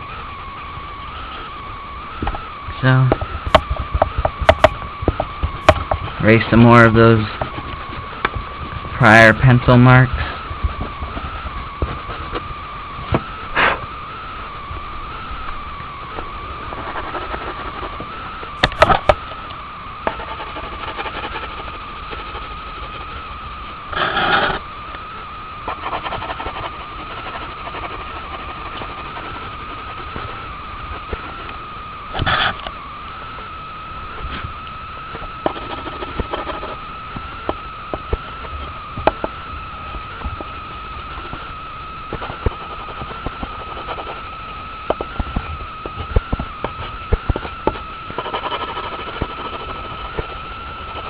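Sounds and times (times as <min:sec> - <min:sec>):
high-pitched whine: 0:00.0 - 0:51.0
rubbing on drawing paper: 0:20.1 - 0:23.2, 0:25.7 - 0:30.4.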